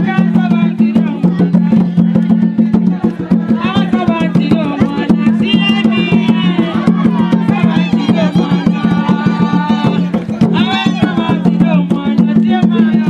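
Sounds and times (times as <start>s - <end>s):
hand drums beating: 0.0s - 13.0s
women singing: 3.3s - 13.0s.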